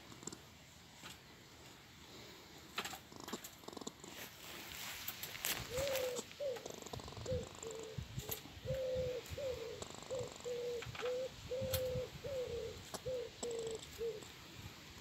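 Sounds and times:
wood pigeon cooing: 0:05.3 - 0:14.6.

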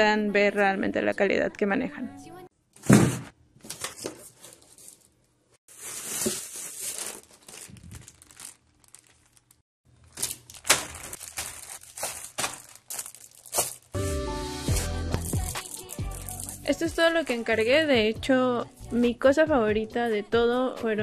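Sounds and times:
loud thump: 0:02.8 - 0:03.3
plastic bags crinkling: 0:03.7 - 0:14.0, 0:15.2 - 0:17.6.

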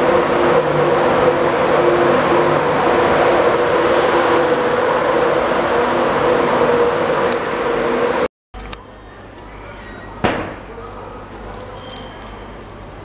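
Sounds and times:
express train rushing past: 0:00.0 - 0:08.3.

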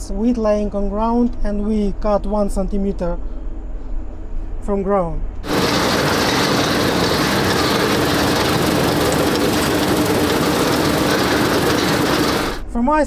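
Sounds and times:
combine harvester running: 0:05.4 - 0:12.7.

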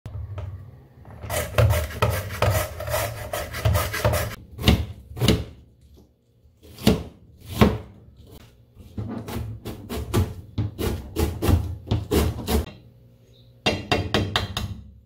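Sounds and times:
carrot rasping on grater: 0:01.3 - 0:04.4
knife cutting onion on board: 0:01.3 - 0:05.6, 0:09.1 - 0:12.7.

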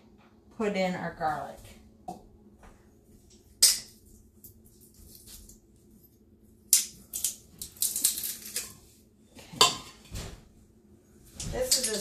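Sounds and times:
kitchen utensils clattering: 0:09.4 - 0:10.1, 0:11.4 - 0:12.0.

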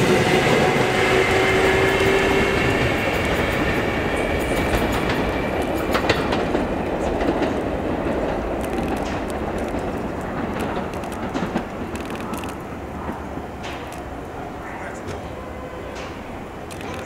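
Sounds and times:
train wheels rumbling on rails: 0:00.0 - 0:17.0
clicks over rail joints: 0:04.6 - 0:14.1.

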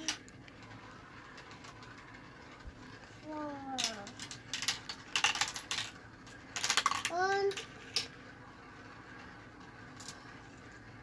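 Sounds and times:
marbles clattering down plastic run: 0:00.0 - 0:08.2.

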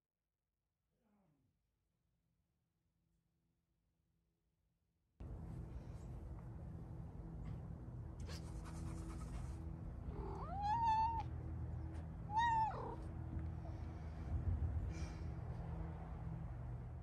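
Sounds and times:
steady low hum: 0:05.2 - 0:17.0
cat meowing: 0:10.1 - 0:11.3, 0:12.3 - 0:13.0.

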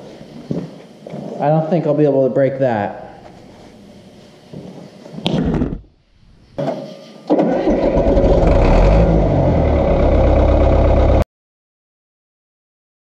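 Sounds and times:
bulldozer diesel engine running: 0:07.3 - 0:11.2.

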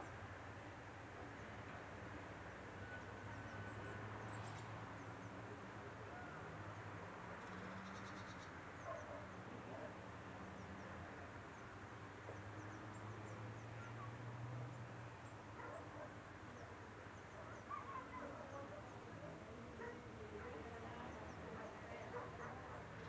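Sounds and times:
distant animal calls: 0:17.4 - 0:20.6.

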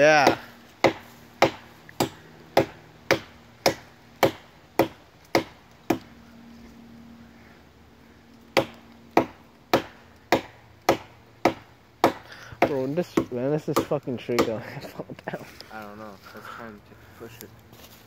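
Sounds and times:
hatchet chopping tree trunk: 0:00.1 - 0:06.1, 0:08.5 - 0:14.8.

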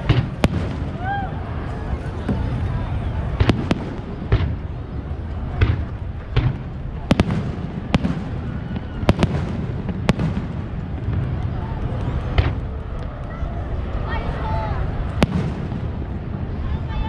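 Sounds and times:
fireworks bursting: 0:00.0 - 0:14.0, 0:14.9 - 0:17.0
steady low rumble: 0:00.0 - 0:17.0.

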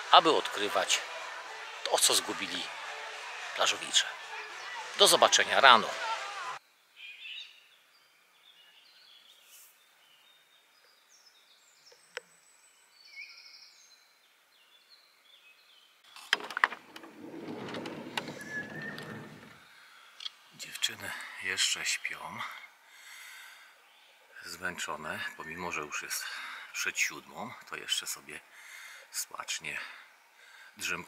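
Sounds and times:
rustling: 0:16.1 - 0:19.7
birds chirping and whistling: 0:17.4 - 0:19.6.

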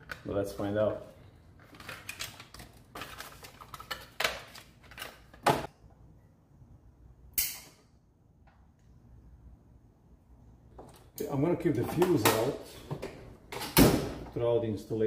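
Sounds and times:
packaging crackling and rustling: 0:01.6 - 0:05.4.

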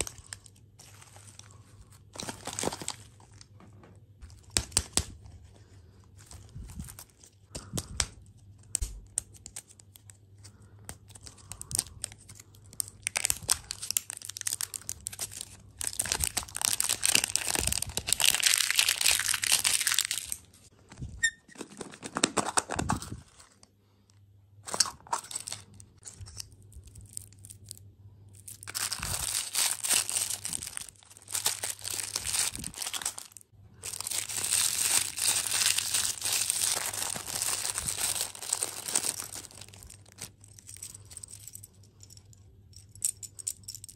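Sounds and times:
foil wrapper tearing and crinkling: 0:00.0 - 0:03.4, 0:08.7 - 0:20.5, 0:28.4 - 0:40.5
plastic bag crinkling: 0:00.0 - 0:03.6, 0:11.1 - 0:23.6, 0:28.4 - 0:41.5.

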